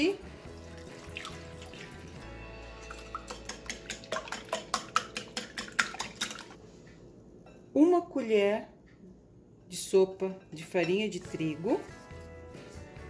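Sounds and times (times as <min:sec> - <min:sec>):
soft background music: 0:00.0 - 0:07.2, 0:09.8 - 0:13.0
whisk clicking against glass bowl: 0:02.8 - 0:06.5.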